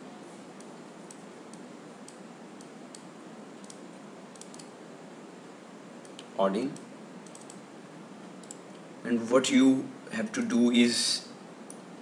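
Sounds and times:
microphone hiss: 0.0s - 12.0s
computer mouse clicks: 0.6s - 4.7s, 6.0s - 7.6s, 8.4s - 8.8s.

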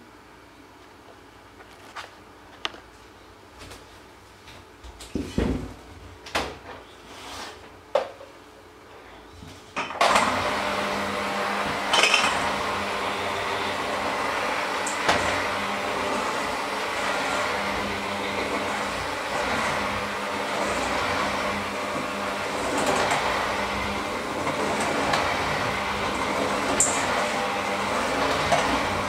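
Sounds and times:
electric mixer motor hum: 10.0s - 29.0s.

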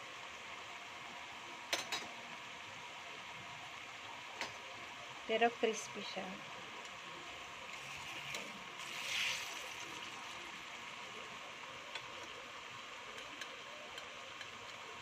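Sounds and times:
food sizzling in hot oil: 4.1s - 14.9s.

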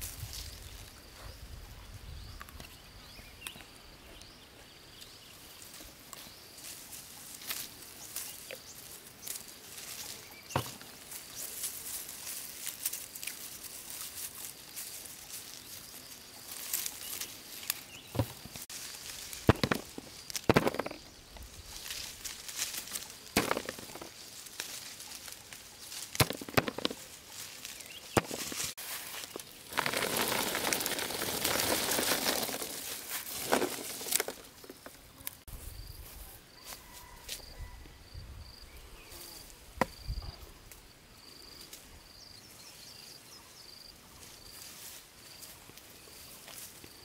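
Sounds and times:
insect chirping: 0.1s - 47.0s
apples rattling into basket: 18.1s - 21.1s, 23.4s - 24.2s, 26.2s - 27.1s, 28.1s - 35.0s
apples knocking: 19.4s - 21.1s, 23.4s - 24.1s, 26.2s - 27.0s.

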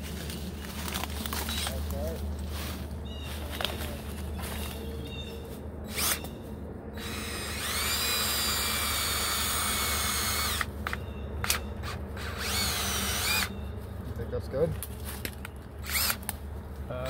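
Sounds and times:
cordless drill whining: 5.9s - 6.2s, 7.0s - 13.5s, 15.8s - 16.2s.

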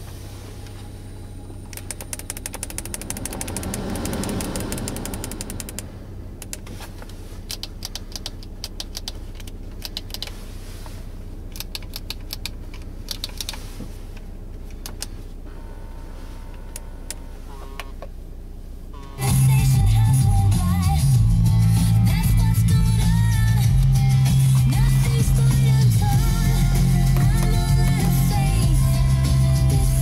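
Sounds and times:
low cabin hum: 0.0s - 30.0s
keys clicking against dashboard: 1.7s - 5.8s, 7.5s - 10.3s, 11.5s - 13.6s
faint electronic tones: 15.5s - 18.1s.

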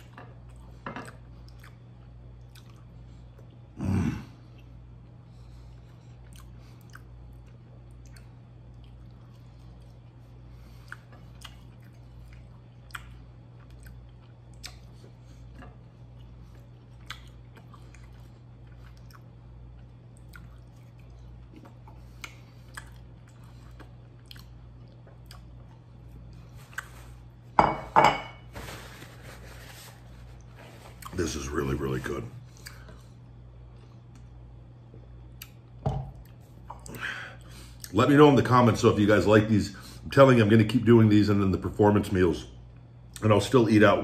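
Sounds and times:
person chewing: 0.0s - 3.7s, 5.7s - 27.5s, 30.3s - 31.2s, 32.4s - 37.9s
faint low hum: 0.0s - 44.0s
paper towel rustling: 28.4s - 32.3s.

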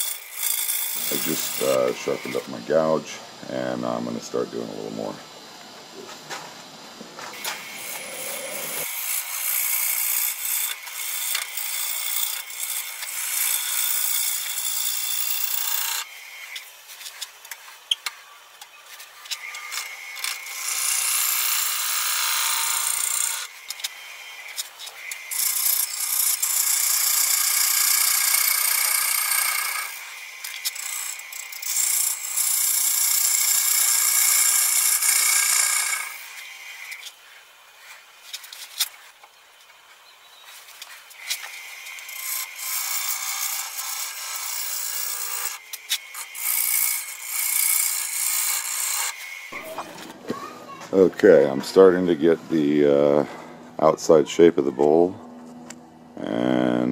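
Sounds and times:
gouge scraping spinning wood: 0.0s - 3.0s, 7.3s - 17.9s, 19.0s - 37.0s, 40.8s - 50.1s.

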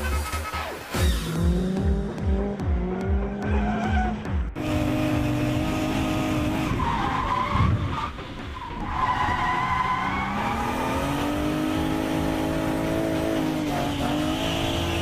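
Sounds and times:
car engine at high revs: 1.0s - 15.0s.

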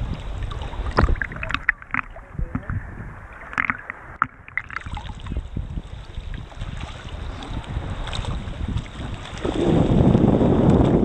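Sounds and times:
sea water lapping and splashing: 0.0s - 11.0s
water slapping camera housing: 0.5s - 2.8s, 3.5s - 5.3s.

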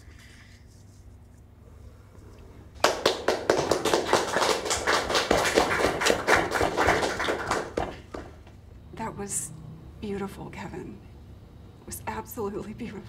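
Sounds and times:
students applauding: 2.8s - 8.4s.

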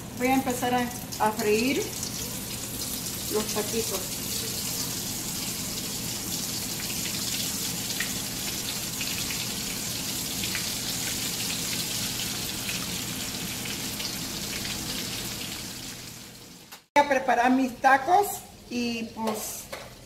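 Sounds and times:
food sizzling in hot oil: 0.0s - 16.9s.

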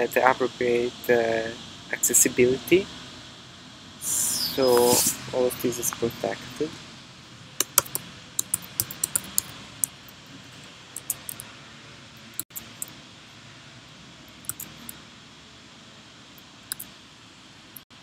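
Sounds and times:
low hiss: 0.0s - 18.0s
keyboard key taps: 7.6s - 9.5s
mouse clicks: 7.6s - 9.5s, 14.4s - 15.0s.

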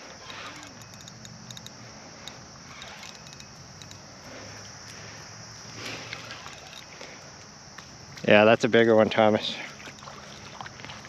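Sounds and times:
fishing reel clicking: 0.0s - 4.1s, 6.1s - 6.9s.

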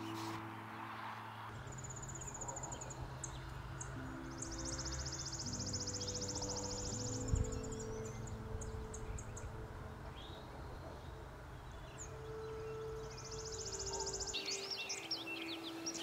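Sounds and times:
sparrow singing dry high trill: 11.7s - 16.0s.

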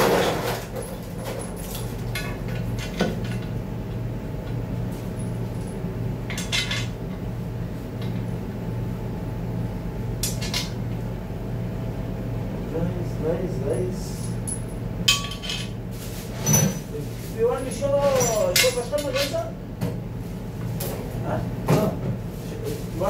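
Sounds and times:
steady low hum: 0.0s - 23.0s
metal parts clinking: 14.1s - 15.8s, 17.5s - 19.4s.

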